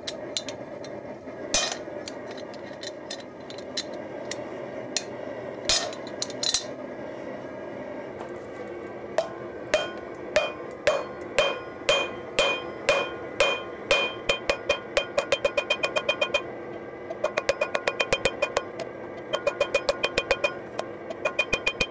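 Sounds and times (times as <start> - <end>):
hammer ringing on anvil: 9.2 - 16.5, 17.1 - 21.9.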